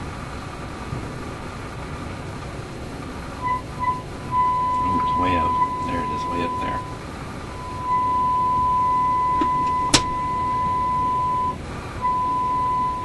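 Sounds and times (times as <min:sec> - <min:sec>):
high-pitched test tone: 0:03.4 - 0:13.0.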